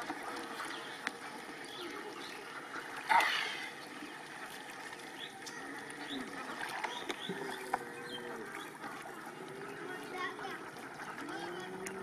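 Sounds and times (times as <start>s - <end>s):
water dripping and splashing: 0.0s - 12.0s.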